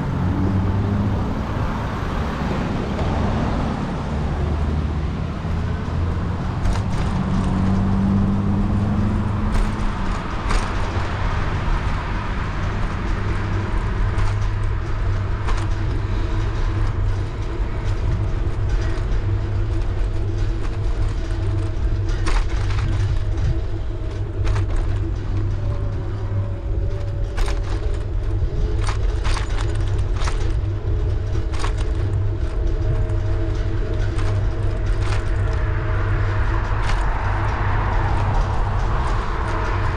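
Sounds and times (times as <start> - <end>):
car traffic: 0.0 - 39.9
wind and road noise: 0.0 - 39.9
sharp clicks and rattles: 5.2 - 39.9.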